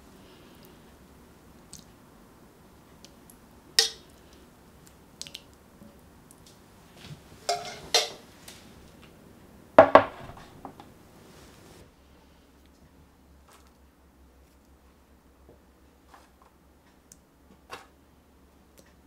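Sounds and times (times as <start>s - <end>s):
spoon clinking on plate: 7.5s - 8.2s.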